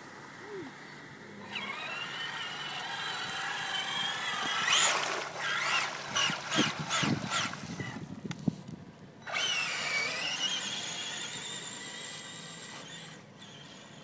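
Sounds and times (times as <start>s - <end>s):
electric motor whining: 1.4s - 8.1s, 9.2s - 14.0s.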